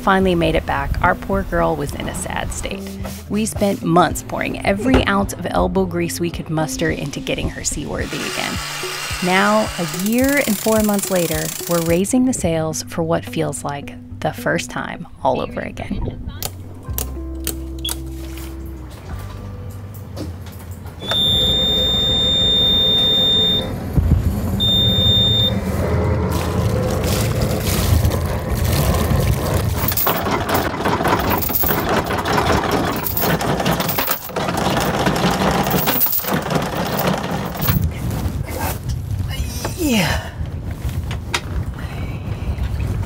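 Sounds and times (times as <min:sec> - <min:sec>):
background music: 0:00.0 - 0:21.3, 0:28.9 - 0:37.8
high electronic beep: 0:21.0 - 0:23.7, 0:24.6 - 0:25.6.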